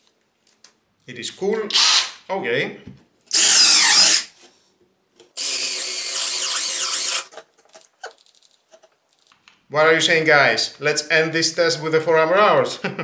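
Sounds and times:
cordless drill running: 1.8s - 2.1s, 3.3s - 4.3s, 5.4s - 7.3s.

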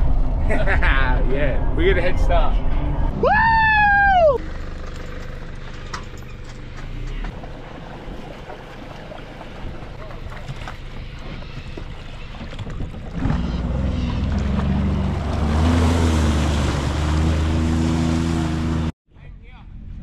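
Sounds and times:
jet ski engine revving: 13.0s - 18.9s.

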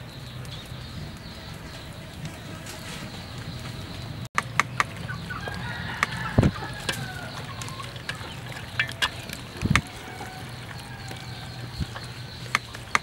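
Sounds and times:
chickens clucking: 0.0s - 13.0s
sharp clicks: 4.4s - 5.2s, 11.0s - 13.0s.

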